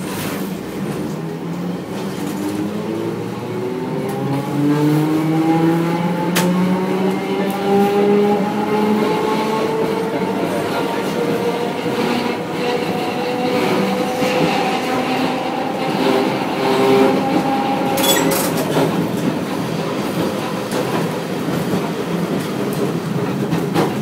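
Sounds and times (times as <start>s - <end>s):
wheels rumbling on rail: 0.0s - 24.0s
clacks over rail joints: 9.0s - 24.0s.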